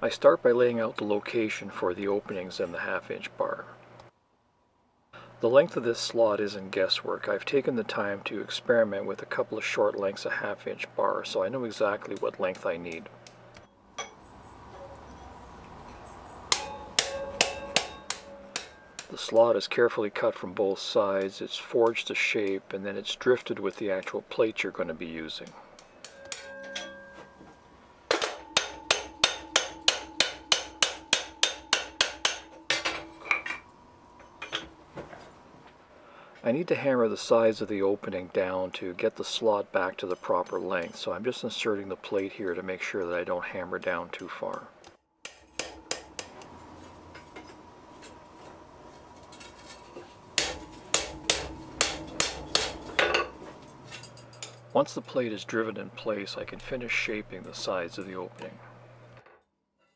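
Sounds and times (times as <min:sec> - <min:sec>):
hammer striking iron on anvil: 0:14.0 - 0:14.2, 0:16.5 - 0:19.2, 0:25.8 - 0:27.4, 0:28.1 - 0:33.6, 0:45.2 - 0:46.4, 0:50.4 - 0:54.6
anvil ringing: 0:16.5 - 0:19.2, 0:25.8 - 0:33.6, 0:50.4 - 0:54.6.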